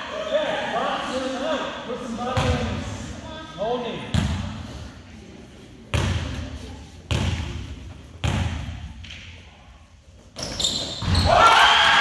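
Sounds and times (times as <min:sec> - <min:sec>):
basketball bouncing on hardwood floor: 0:08.2 - 0:08.7.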